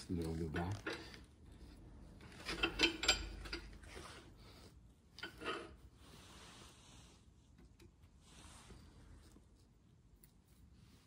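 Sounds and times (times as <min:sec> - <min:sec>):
metallic clicking and rattling: 0:02.2 - 0:03.8.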